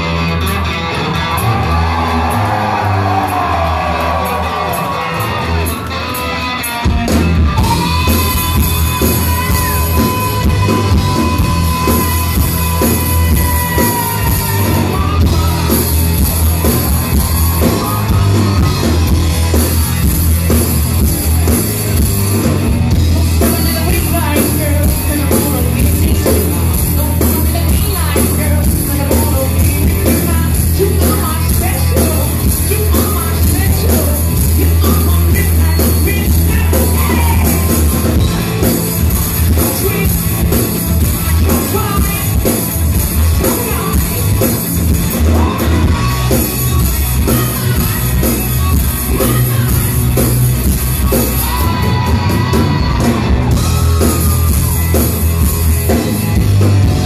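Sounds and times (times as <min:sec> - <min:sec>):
bass guitar: 0:00.0 - 0:57.0
drums: 0:00.0 - 0:57.0
electric guitar: 0:00.0 - 0:57.0
lead vocals: 0:01.4 - 0:05.2, 0:07.6 - 0:20.8, 0:22.9 - 0:57.0.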